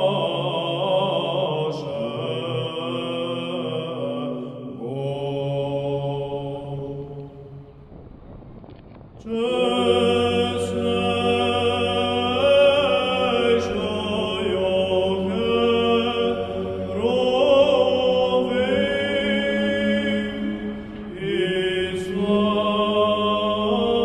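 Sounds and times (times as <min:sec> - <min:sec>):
voices chanting slow melody: 0:00.0 - 0:07.6, 0:09.2 - 0:24.0.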